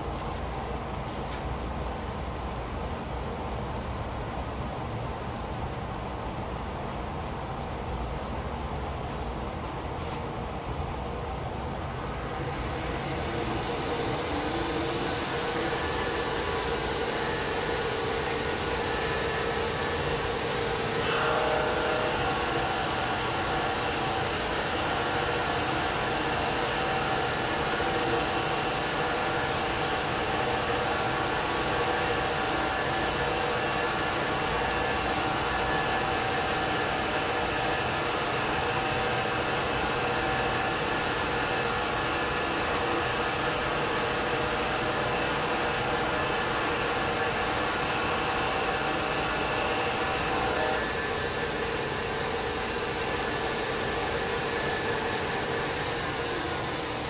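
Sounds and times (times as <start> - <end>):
milling machine cutting metal: 12.0 - 57.0.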